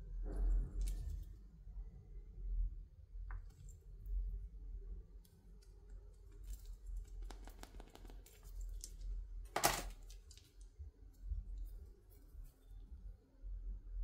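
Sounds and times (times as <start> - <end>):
plastic packaging clicks and crinkles: 6.2 - 10.7.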